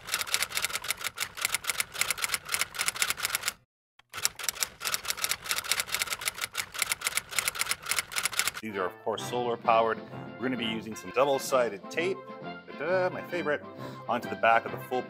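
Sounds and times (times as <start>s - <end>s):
typewriter key clicks: 0.0s - 8.6s.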